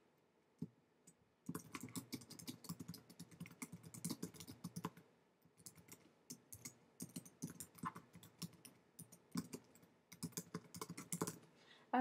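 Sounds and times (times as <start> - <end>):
typing on computer keyboard: 1.4 - 5.0, 5.6 - 11.5.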